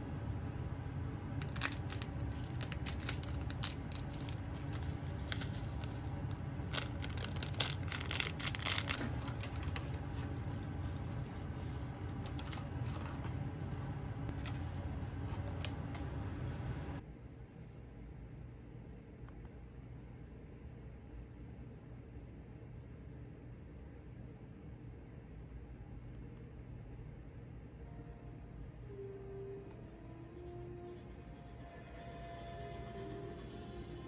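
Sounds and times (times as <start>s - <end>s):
low hum: 0.0s - 20.2s
plastic packet crinkling: 1.4s - 11.1s, 12.0s - 13.4s.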